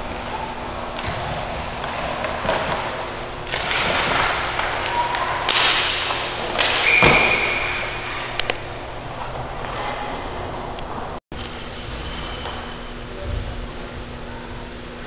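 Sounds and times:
hockey sticks slapping and scraping: 0:00.0 - 0:11.0
puck being hit: 0:00.9 - 0:08.6
referee's whistle: 0:06.8 - 0:08.0.

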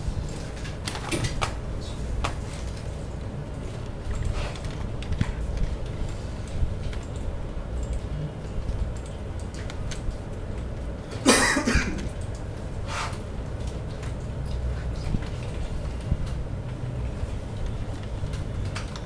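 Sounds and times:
low room hum: 0:00.0 - 0:19.0
person coughing: 0:11.2 - 0:12.1.

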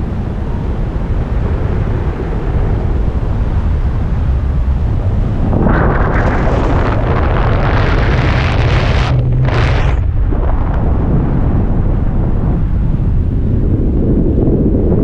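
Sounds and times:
harsh rush of wind: 0:00.0 - 0:15.0
wind buffeting microphone: 0:00.0 - 0:15.0.

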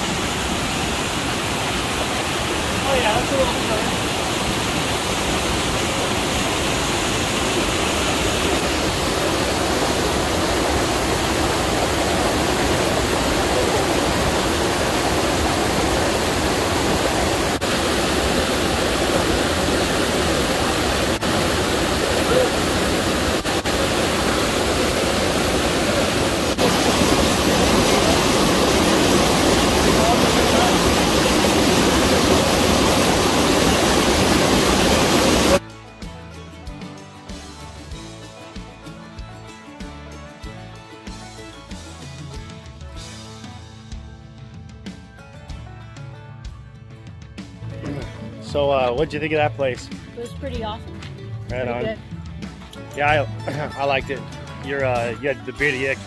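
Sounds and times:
river water rushing over rocks: 0:00.0 - 0:35.6.

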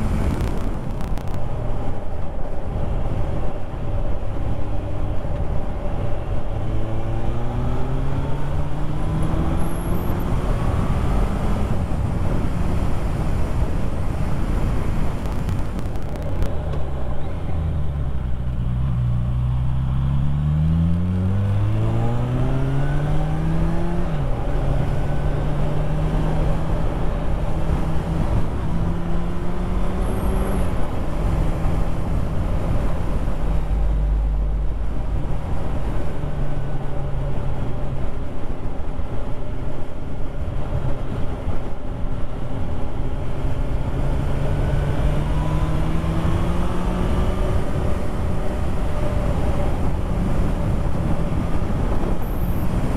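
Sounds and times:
wind and road rush: 0:00.0 - 0:52.9
motorcycle engine accelerating: 0:14.9 - 0:37.4, 0:43.4 - 0:52.9.

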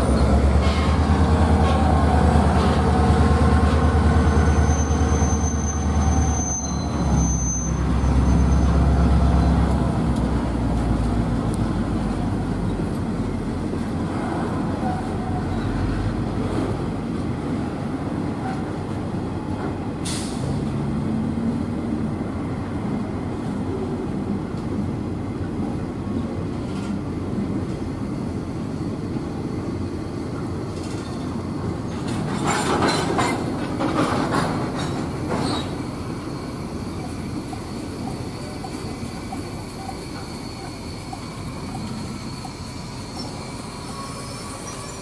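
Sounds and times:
train wheels squealing: 0:00.0 - 0:09.8, 0:27.7 - 0:45.0
train wheels rumbling on rail: 0:00.0 - 0:45.0.

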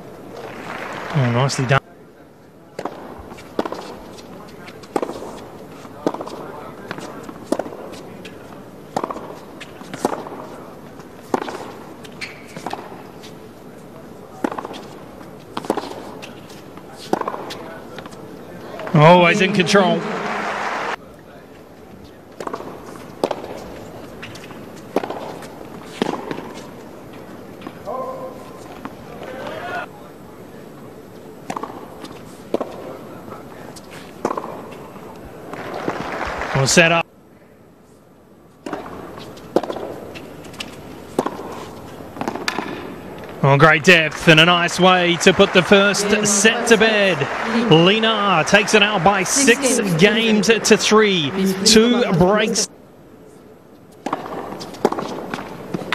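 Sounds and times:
stadium crowd murmur: 0:00.0 - 0:03.2, 0:16.8 - 0:22.4, 0:35.0 - 0:37.0, 0:43.4 - 0:52.7
racquet striking tennis ball: 0:06.0 - 0:07.9, 0:11.3 - 0:13.0, 0:17.0 - 0:17.7, 0:38.6 - 0:41.6, 0:42.2 - 0:43.4
tennis ball bouncing: 0:06.0 - 0:08.0, 0:08.9 - 0:10.5, 0:11.2 - 0:13.0, 0:14.4 - 0:18.2, 0:22.4 - 0:23.6, 0:24.3 - 0:26.6, 0:34.2 - 0:34.8, 0:38.6 - 0:43.4.

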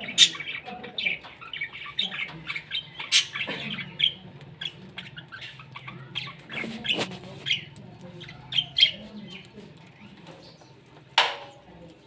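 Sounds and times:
budgerigars chattering: 0:00.0 - 0:09.6.

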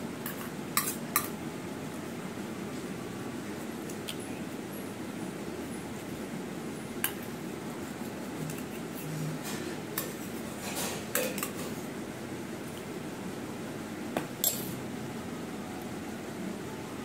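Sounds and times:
low background noise: 0:00.0 - 0:17.0
cutlery clinking on plate: 0:09.4 - 0:11.8.

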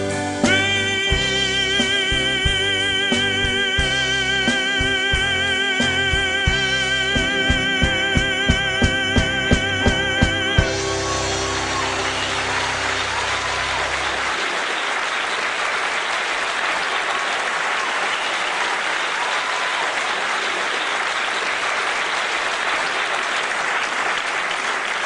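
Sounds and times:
band low notes: 0:00.0 - 0:14.4
audience applauding: 0:07.1 - 0:25.0.

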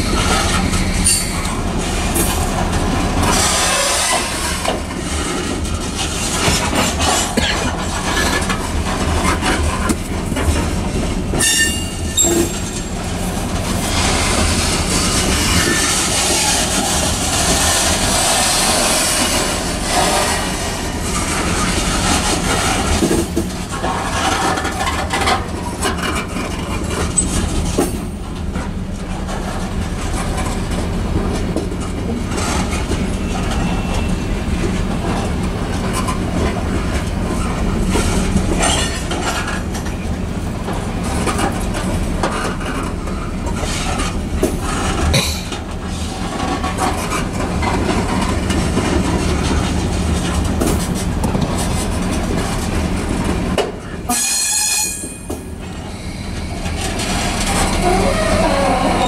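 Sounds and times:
freight train rumbling past: 0:00.0 - 0:59.0
wheels clattering over rail joints: 0:00.0 - 0:59.0
high-pitched wheel squeal: 0:00.1 - 0:01.5, 0:11.4 - 0:12.9, 0:33.1 - 0:34.4, 0:54.1 - 0:56.7, 0:57.5 - 0:59.0.

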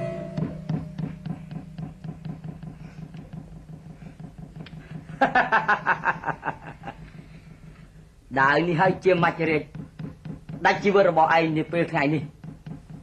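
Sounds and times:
steady ticking clicks: 0:00.4 - 0:13.0
person cackling laugh: 0:05.0 - 0:07.2.

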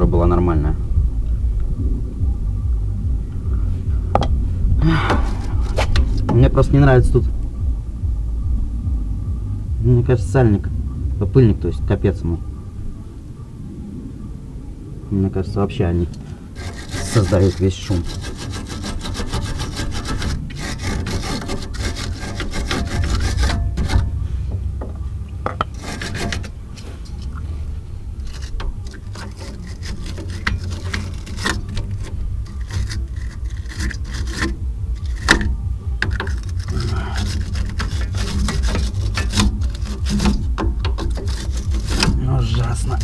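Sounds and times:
steady low rumble: 0:00.0 - 0:43.0
metallic clicks and scraping: 0:05.1 - 0:06.5, 0:16.1 - 0:24.2, 0:25.4 - 0:27.5, 0:28.2 - 0:43.0.

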